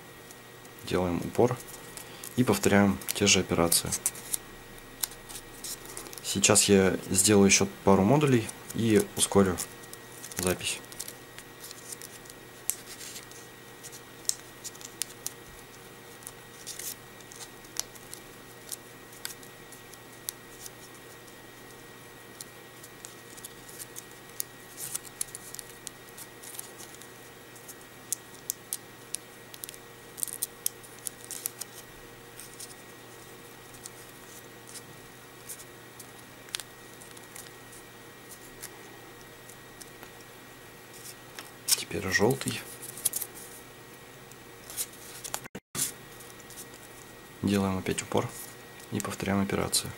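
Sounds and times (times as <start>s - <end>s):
faint steady hum: 0.0s - 49.9s
paper rustling and crinkling: 8.3s - 21.4s, 22.3s - 28.5s, 29.1s - 32.9s, 40.9s - 43.6s, 44.6s - 47.1s.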